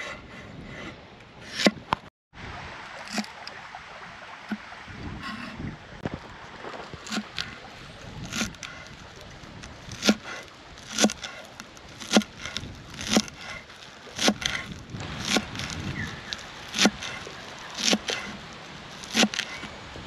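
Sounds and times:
chopping wood: 0:12.0 - 0:13.6, 0:14.2 - 0:15.9, 0:16.7 - 0:17.2, 0:19.0 - 0:19.6.

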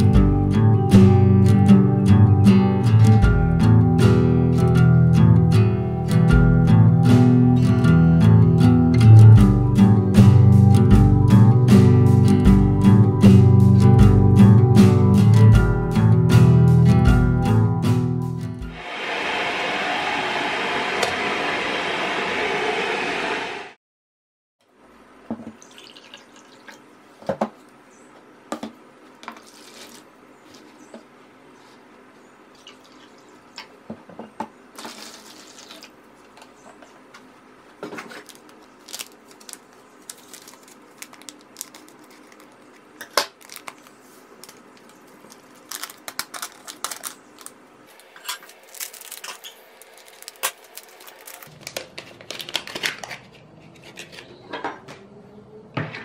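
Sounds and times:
loud steady noise: 0:18.7 - 0:23.8
water pouring into plastic bowl: 0:25.6 - 0:26.8.

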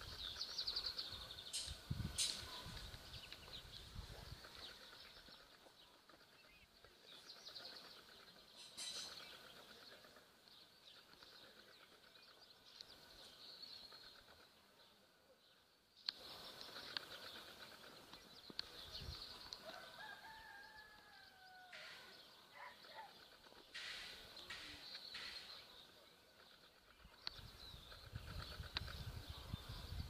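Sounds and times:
faint birds chirping: 0:00.0 - 0:30.0
distant rooster crowing: 0:19.6 - 0:22.2.

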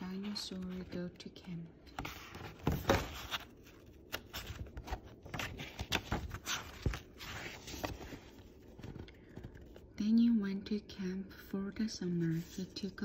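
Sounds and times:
book pages turning: 0:00.0 - 0:09.9.

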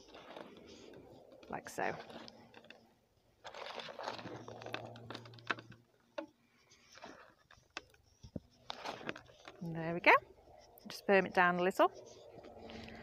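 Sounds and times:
gravel clicks: 0:00.0 - 0:05.9.

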